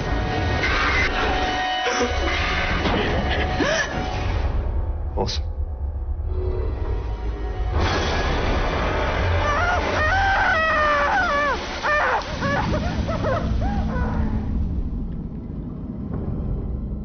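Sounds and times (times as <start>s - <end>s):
warbling pitch-sliding shrieks: 9.3s - 14.6s
low rumble: 11.5s - 17.0s.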